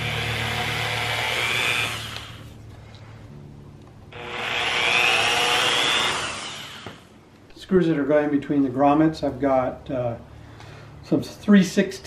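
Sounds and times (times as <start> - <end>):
electric drill driving screws: 0.0 - 2.5, 4.2 - 7.1.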